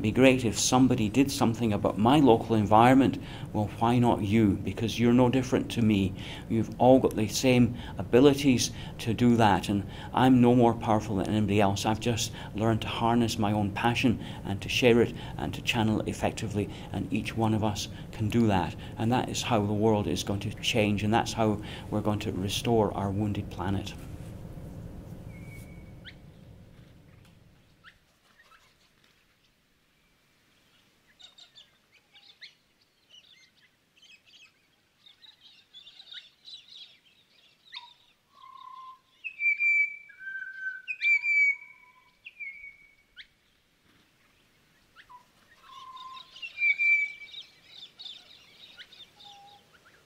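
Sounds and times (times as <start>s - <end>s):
birds chirping and whistling: 25.2s - 26.5s, 31.2s - 43.3s, 44.8s - 50.0s.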